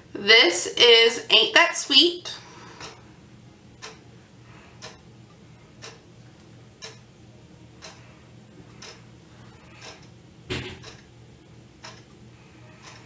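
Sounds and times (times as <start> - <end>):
low steady hum: 0.0 - 13.0
clock ticking faintly: 3.7 - 4.1, 4.8 - 6.0, 6.7 - 7.1, 7.8 - 10.2, 10.8 - 11.1, 11.8 - 13.0.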